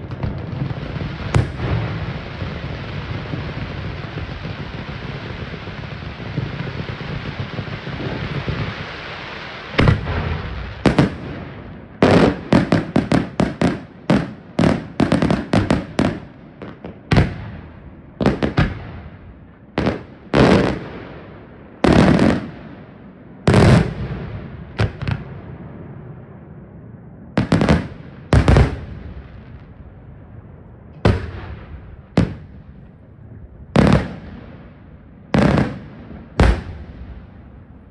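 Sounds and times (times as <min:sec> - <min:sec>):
firework hiss: 0:00.9 - 0:11.6.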